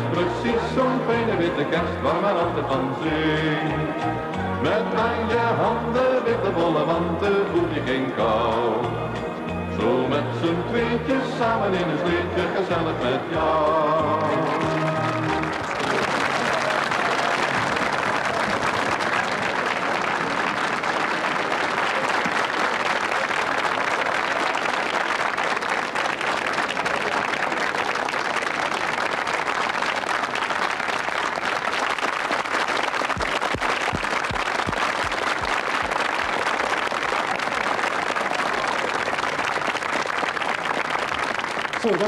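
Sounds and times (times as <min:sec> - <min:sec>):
studio audience applauding: 0:14.0 - 0:42.0.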